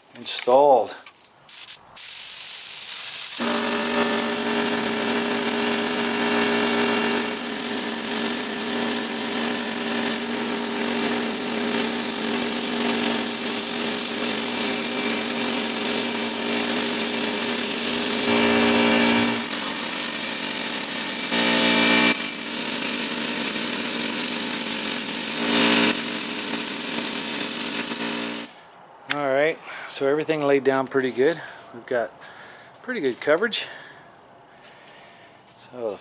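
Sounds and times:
spray gun hissing: 1.5s - 28.6s.

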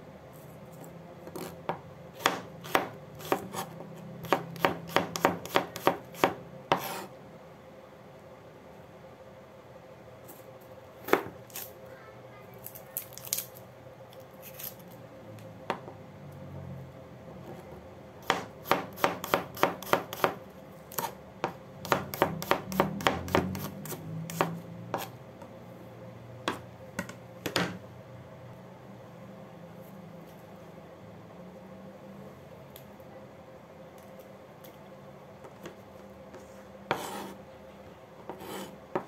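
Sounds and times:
knife chopping on cutting board: 1.3s - 7.1s, 18.2s - 25.1s, 36.9s - 37.4s, 38.3s - 39.0s.

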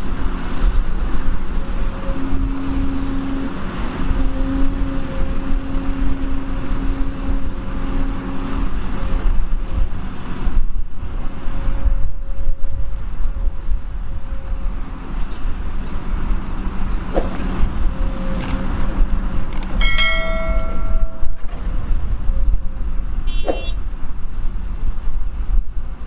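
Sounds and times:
diesel engines rumbling: 0.0s - 26.0s
sharp metal knocks: 19.8s - 21.7s.

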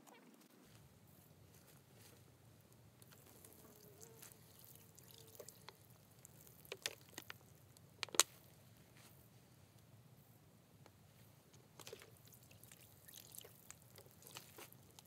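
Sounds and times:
water trickling into basin: 3.8s - 7.3s, 12.2s - 15.0s.

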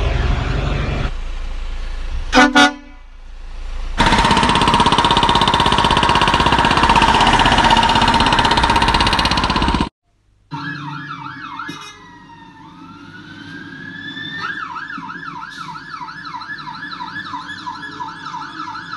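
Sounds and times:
vehicle horn toots: 2.3s - 3.1s
digger engine running: 4.0s - 9.9s.

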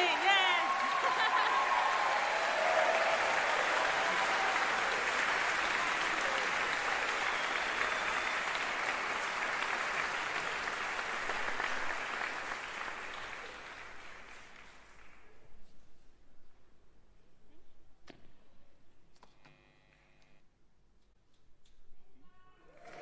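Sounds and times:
audience applauding: 0.0s - 15.4s, 22.7s - 23.0s.

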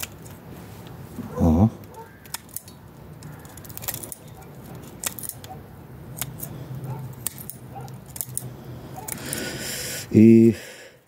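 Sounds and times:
scissors snipping roots: 1.8s - 9.4s.

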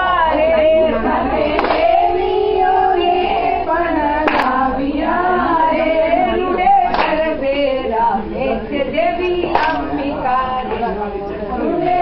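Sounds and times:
women singing: 0.0s - 12.0s
hand claps: 1.5s - 2.1s, 4.2s - 4.6s, 6.9s - 7.4s, 9.4s - 10.1s.

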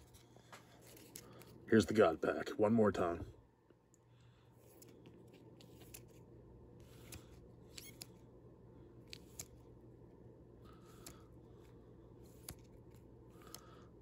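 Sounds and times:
cards sliding and clicking: 0.0s - 1.6s, 4.6s - 8.3s, 9.0s - 9.8s, 10.7s - 13.8s.

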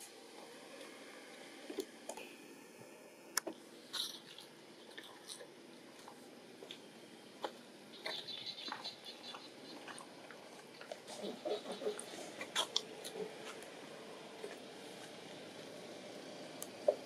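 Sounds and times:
low wavering monkey calls: 7.9s - 10.2s, 11.1s - 13.5s.

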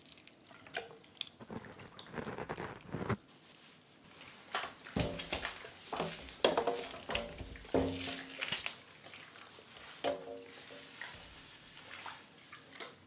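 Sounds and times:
wet slime squelching: 0.0s - 3.2s.

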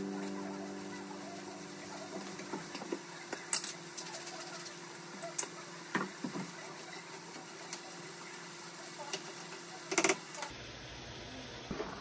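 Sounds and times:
faint steady hum: 0.0s - 6.7s.

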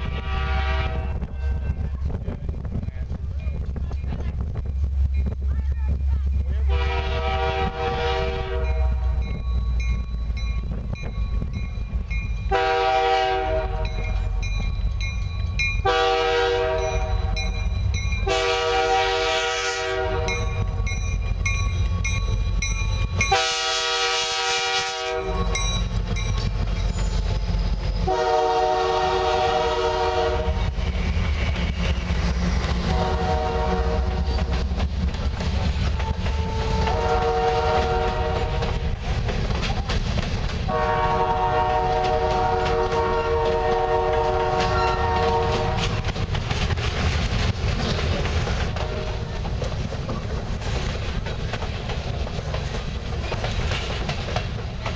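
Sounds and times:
locomotive air horn blasts: 0.0s - 1.5s, 6.7s - 9.2s, 12.5s - 14.1s, 15.8s - 17.4s, 18.2s - 20.7s, 23.3s - 25.6s, 28.1s - 30.7s, 32.9s - 34.4s, 36.0s - 38.7s, 40.7s - 46.0s, 48.7s - 49.2s
train rumbling past: 0.0s - 54.9s
train wheel clatter: 0.0s - 54.9s.

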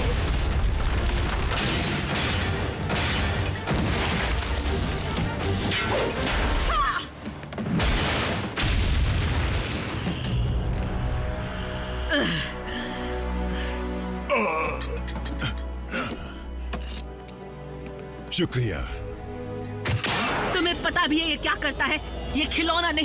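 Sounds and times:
dramatic music score: 0.0s - 23.0s
booming impacts and crashes: 7.4s - 10.9s.

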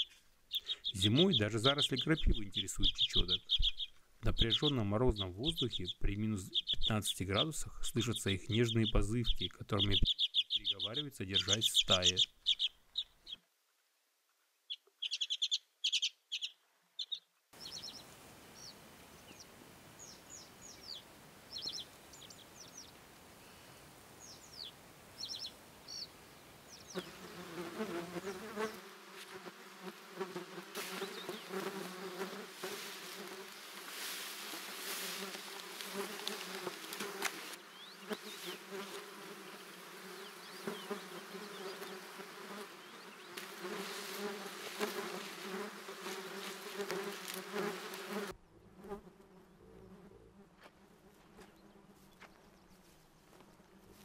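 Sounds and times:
small birds chirping: 0.0s - 13.5s, 14.6s - 28.8s, 30.2s - 48.3s
swarm of insects buzzing: 25.5s - 52.0s.

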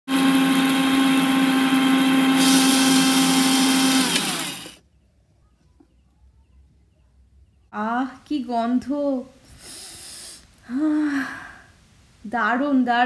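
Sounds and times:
mixer grinder whining: 0.1s - 4.8s
motor spinning down: 0.1s - 4.8s.

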